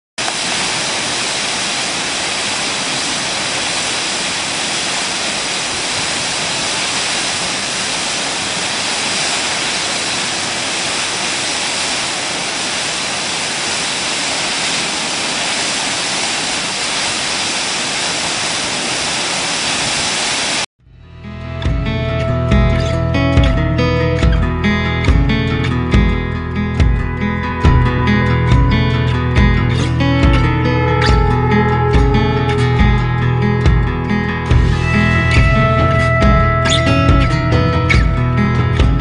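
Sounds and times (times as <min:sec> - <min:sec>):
waterfall rushing: 0:00.2 - 0:20.7, 0:33.7 - 0:38.9.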